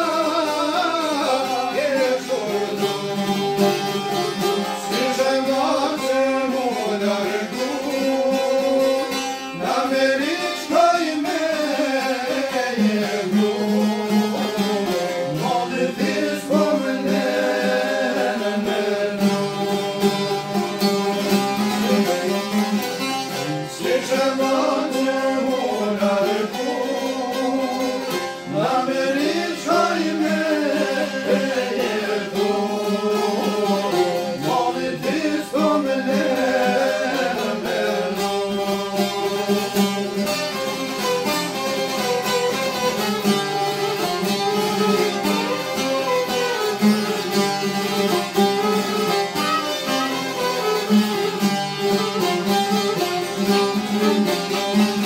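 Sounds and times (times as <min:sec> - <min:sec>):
man singing: 0:00.0 - 0:04.0, 0:04.7 - 0:20.5, 0:23.3 - 0:40.0
plucked lutes: 0:00.0 - 0:55.0
violin: 0:00.0 - 0:55.0.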